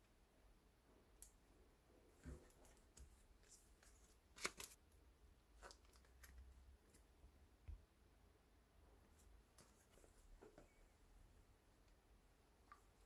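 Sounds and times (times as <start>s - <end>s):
paper cards rustling: 2.5s - 4.8s.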